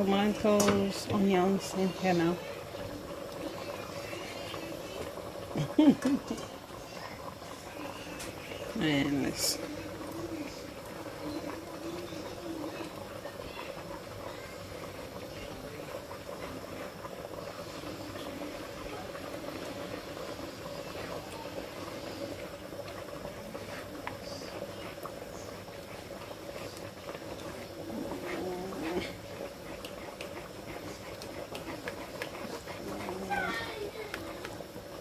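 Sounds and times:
broth boiling and bubbling: 0.0 - 35.0.

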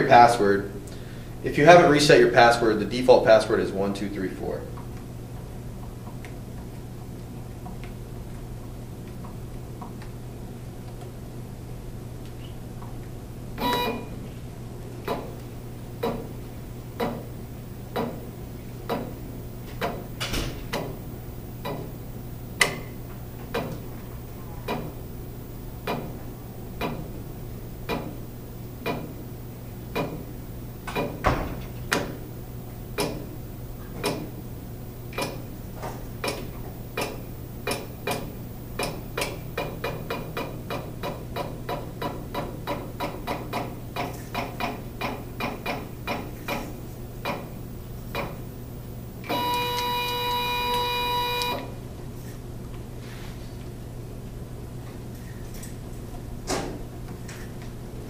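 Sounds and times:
steady low hum: 0.0 - 58.0
label printer clicking: 49.2 - 51.7.

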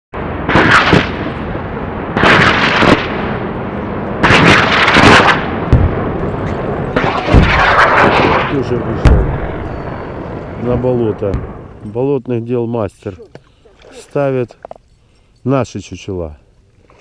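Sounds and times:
shotgun blasts: 0.2 - 11.8.

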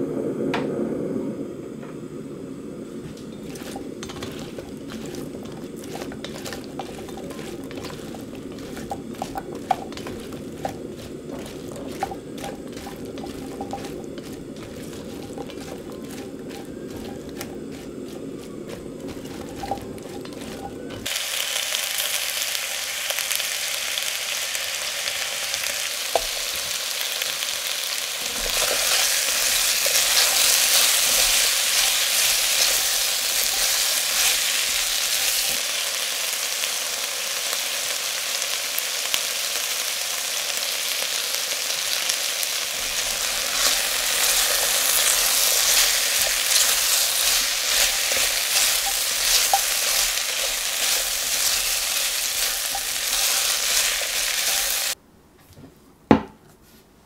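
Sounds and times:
vegetables sizzling in oil: 3.0 - 55.0
spatula stirring in pot: 3.1 - 21.1, 25.7 - 35.6, 42.2 - 55.0.

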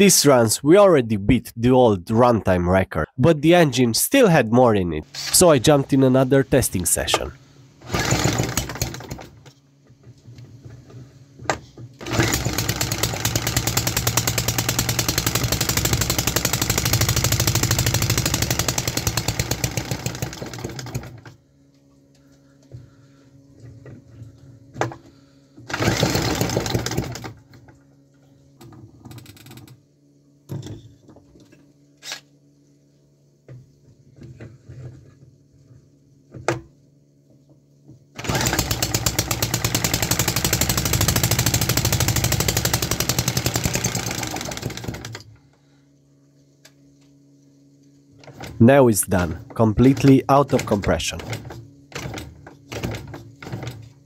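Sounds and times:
faint steady hum: 0.0 - 39.6, 41.3 - 54.0
small engine running fast: 7.8 - 9.2, 12.0 - 21.2, 25.7 - 27.3, 38.2 - 45.2.

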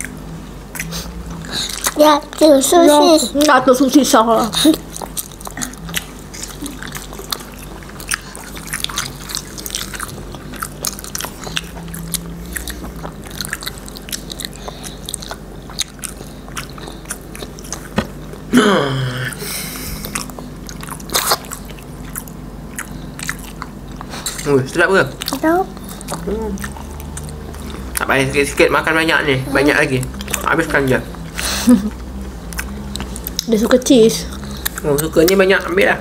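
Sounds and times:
wet chewing: 0.0 - 18.5, 19.3 - 36.0
short falling vocal sound: 18.5 - 19.4.

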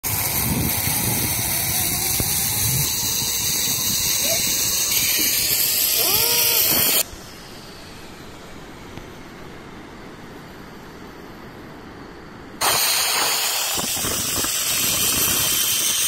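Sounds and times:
zip line rushing hiss: 0.0 - 9.2, 12.6 - 16.0
person exclaiming: 4.2 - 7.0.

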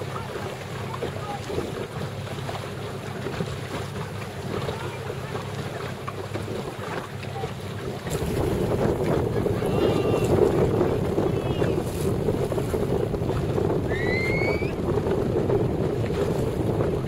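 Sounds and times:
water splashing: 0.0 - 17.0
wind buffeting microphone: 0.0 - 17.0.

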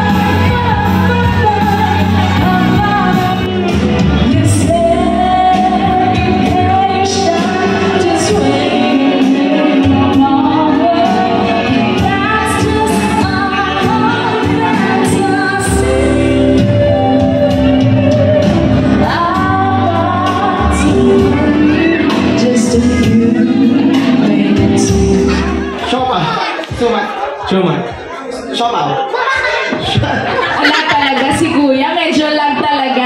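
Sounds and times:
woman singing into microphone: 0.0 - 25.8
backing track over pa: 0.0 - 28.3.

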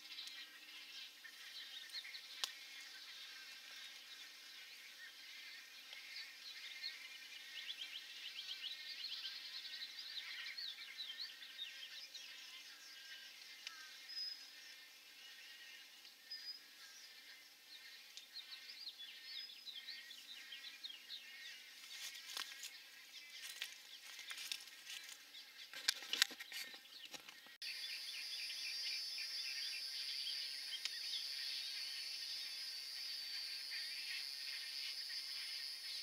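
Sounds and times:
high insect buzz: 27.6 - 36.0.

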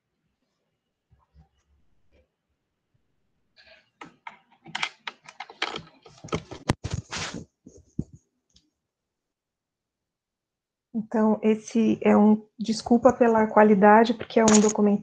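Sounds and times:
clicks and rustles of handling: 3.6 - 8.6, 14.2 - 14.9.

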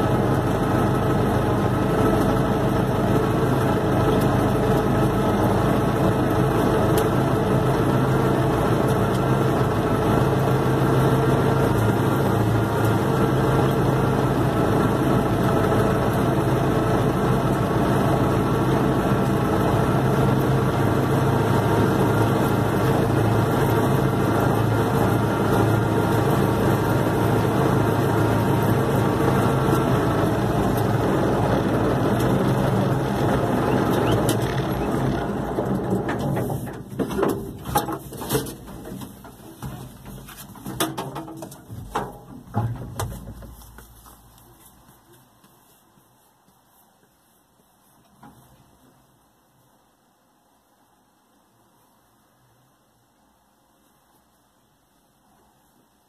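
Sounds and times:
tractor diesel engine running: 0.0 - 44.7.

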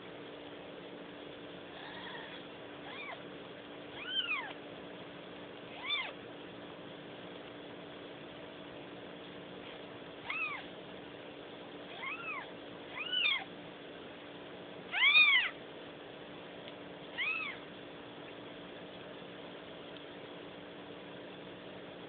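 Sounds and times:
kitten mewing: 1.7 - 3.2, 3.9 - 4.6, 5.7 - 6.2, 10.2 - 10.7, 11.9 - 13.5, 14.9 - 15.6, 17.1 - 17.7.

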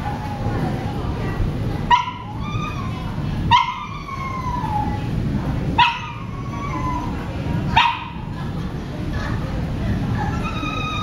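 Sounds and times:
low background rumble: 0.0 - 11.0
dog yelping: 1.9 - 5.1, 5.8 - 8.2, 10.2 - 11.0.

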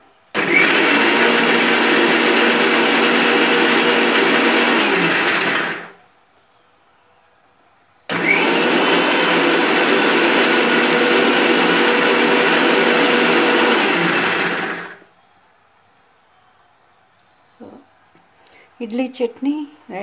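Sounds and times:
mixer grinder grinding: 0.4 - 6.0, 8.1 - 15.0.

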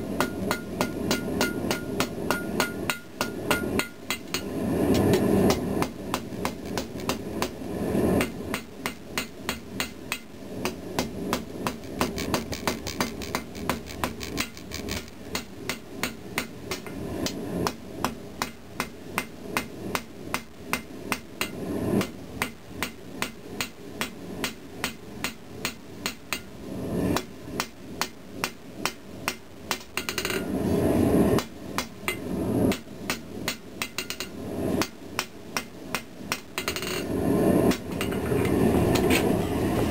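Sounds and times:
hammer striking steel on anvil: 0.2 - 7.6, 8.2 - 14.5, 15.3 - 26.5, 31.4 - 37.0.

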